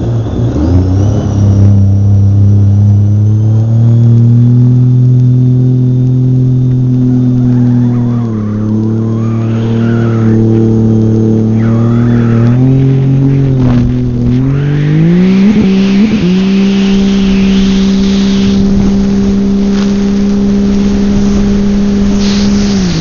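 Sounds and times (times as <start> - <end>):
watercraft engine at speed: 0.0 - 23.0
spray and hull on water: 15.4 - 23.0.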